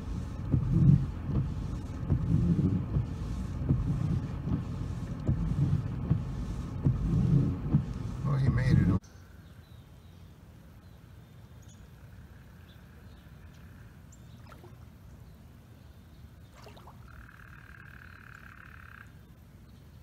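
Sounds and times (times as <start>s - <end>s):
steady low rumble: 0.0s - 9.4s
frog trilling: 17.0s - 19.2s.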